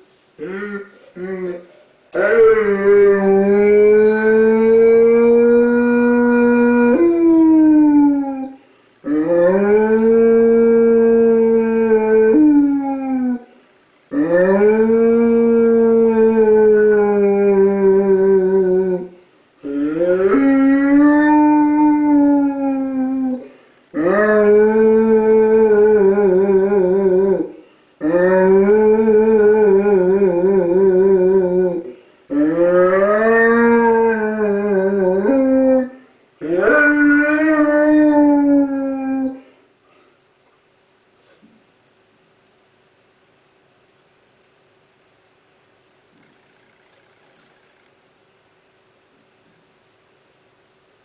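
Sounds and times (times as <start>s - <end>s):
dog howling: 0.5s - 13.5s, 14.1s - 39.5s.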